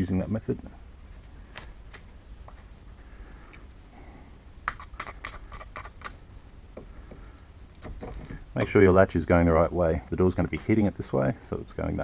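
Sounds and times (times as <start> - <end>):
light ticks and scratches: 1.0 - 3.8, 4.6 - 6.2.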